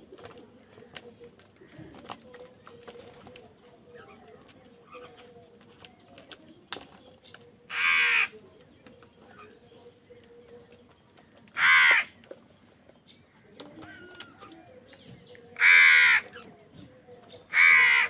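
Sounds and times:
crows cawing: 7.7s - 8.4s, 11.5s - 12.2s, 15.6s - 16.4s, 17.5s - 18.0s.

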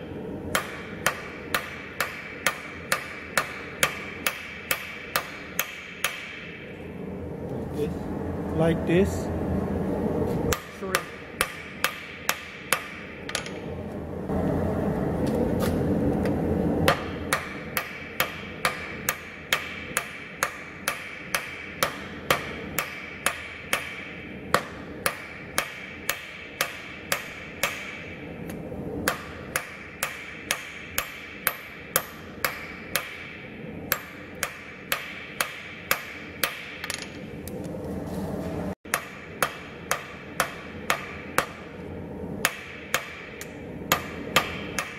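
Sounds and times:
hammer striking steel on anvil: 0.5s - 6.7s, 10.5s - 13.7s, 16.8s - 28.2s, 29.0s - 37.2s, 38.9s - 41.8s, 42.4s - 44.9s.

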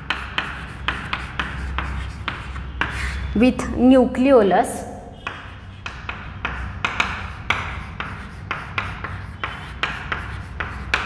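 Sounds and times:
chalk scratching on chalkboard: 0.0s - 3.4s, 5.2s - 11.0s.

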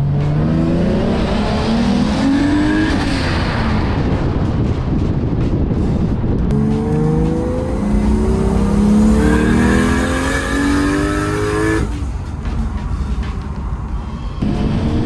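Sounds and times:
car engine accelerating: 0.0s - 4.6s, 5.8s - 12.3s, 14.4s - 15.0s
road noise: 0.0s - 15.0s.

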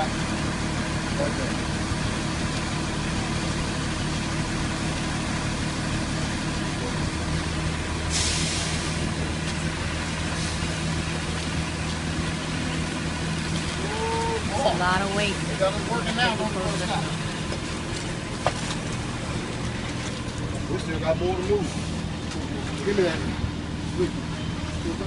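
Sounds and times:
diesel truck engine running: 0.0s - 25.0s
short hiss: 8.1s - 8.9s.

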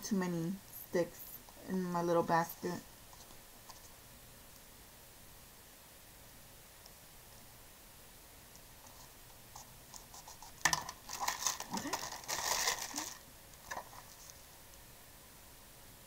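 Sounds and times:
paper rustling and crinkling: 9.9s - 14.5s.

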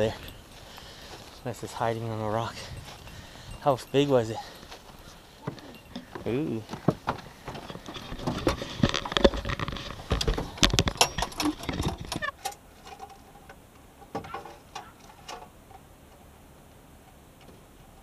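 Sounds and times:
footsteps on wooden dock: 0.0s - 12.1s.

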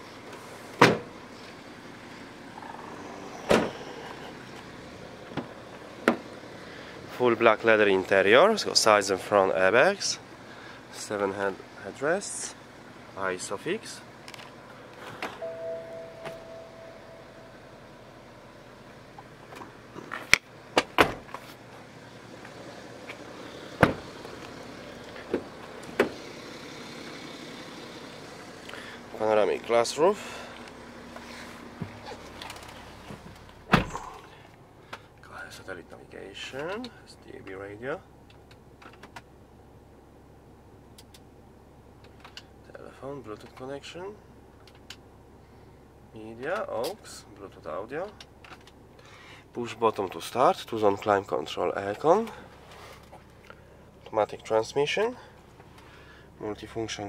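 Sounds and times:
car doors shutting: 0.3s - 1.2s, 2.5s - 6.4s, 15.0s - 17.5s, 19.5s - 21.6s, 22.4s - 26.3s, 31.2s - 34.4s
car tailgate shutting thud: 0.8s - 1.1s, 3.4s - 3.8s, 20.8s - 21.3s, 23.8s - 24.0s, 33.7s - 34.2s.

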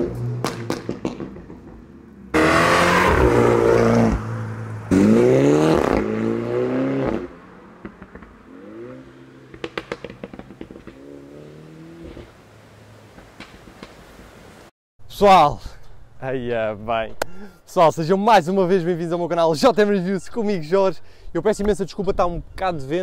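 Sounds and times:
exhaust pops and crackles: 0.0s - 2.0s, 7.1s - 12.4s, 13.0s - 14.5s
car engine revving: 0.0s - 13.4s.

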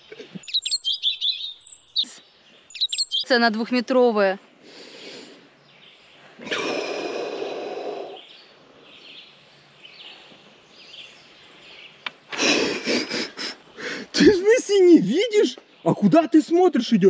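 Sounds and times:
person sighing: 6.4s - 8.2s.

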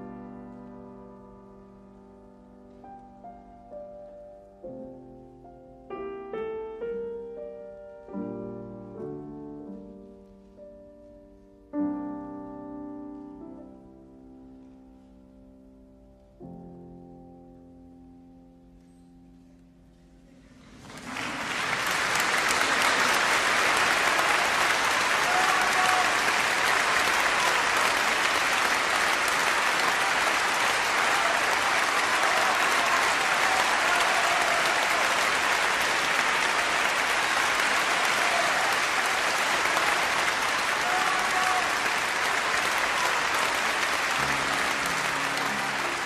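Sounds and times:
audience applause: 20.6s - 46.0s.

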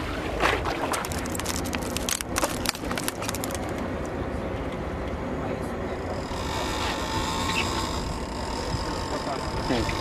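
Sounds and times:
wind and water rumble: 0.0s - 10.0s
sharp clicks and crackles: 1.0s - 4.1s.

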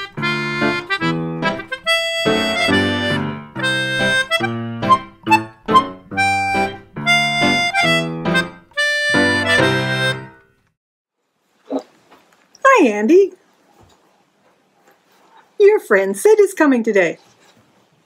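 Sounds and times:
lively jingle music: 0.0s - 10.4s.

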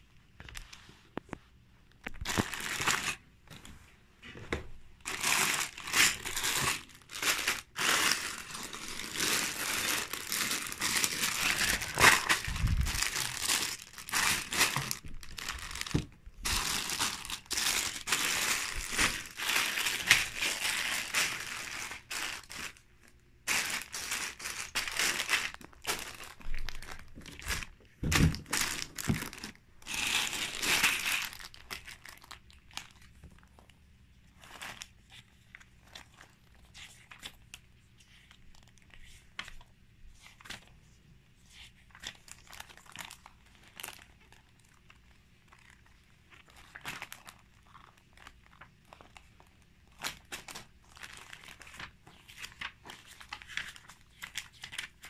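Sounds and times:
plastic bags crinkling: 2.0s - 3.8s, 4.4s - 33.7s, 34.3s - 37.6s, 41.9s - 55.0s.

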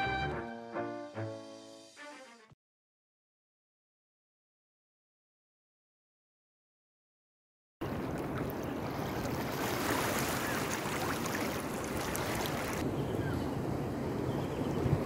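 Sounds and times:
water lapping over rocks: 7.8s - 12.8s.

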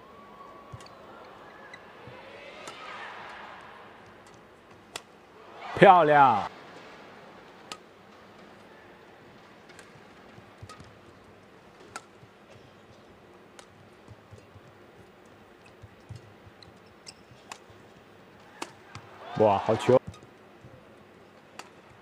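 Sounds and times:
low arena hush: 0.0s - 10.5s
rackets striking shuttlecock: 0.7s - 1.0s, 2.6s - 5.2s, 9.7s - 11.2s, 11.8s - 12.6s, 18.4s - 19.1s, 20.0s - 20.8s.

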